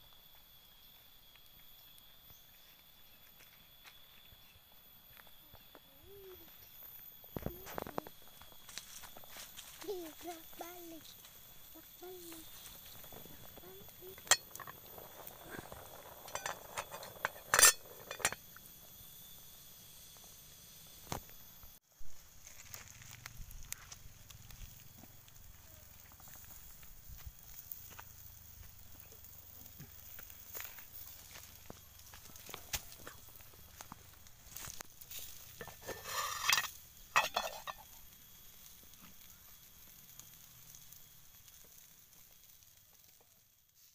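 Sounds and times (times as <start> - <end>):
faint sizzle of meat grilling: 0.0 - 43.9
water boiling: 6.3 - 21.8, 22.4 - 43.7
metal pot lid clinking: 16.2 - 18.4, 35.6 - 37.8.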